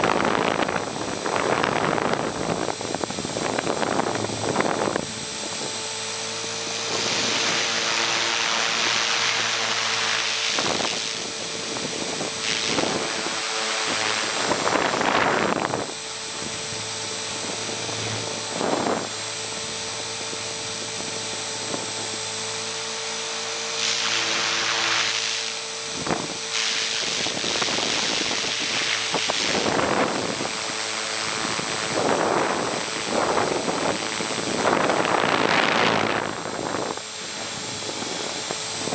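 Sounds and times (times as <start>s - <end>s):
rc helicopter motor whine: 0.0s - 38.9s.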